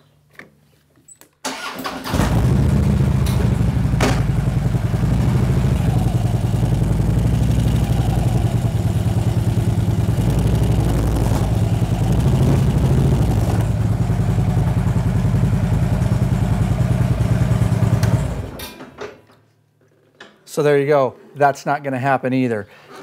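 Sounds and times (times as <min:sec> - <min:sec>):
motorcycle engine idling: 0:02.1 - 0:18.6.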